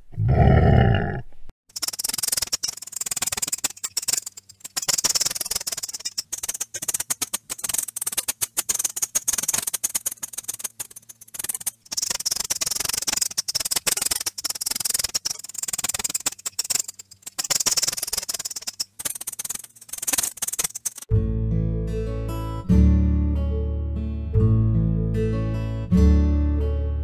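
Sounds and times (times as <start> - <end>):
rat squeaking: 1.7 - 21.1.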